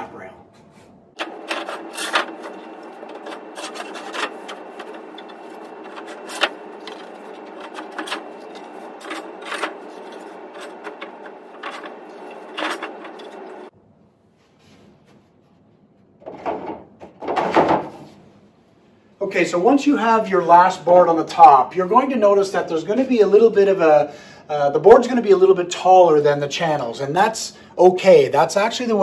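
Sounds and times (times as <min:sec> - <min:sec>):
wood scraping in channels: 0:01.2 - 0:13.7.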